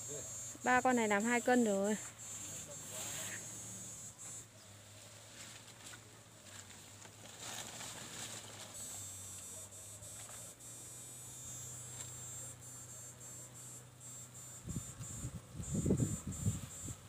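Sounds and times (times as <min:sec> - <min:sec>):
insects buzzing high-pitched: 0:00.0 - 0:06.6, 0:07.3 - 0:17.0
steady low hum: 0:00.0 - 0:17.0
rustling through tall grass: 0:04.8 - 0:09.1.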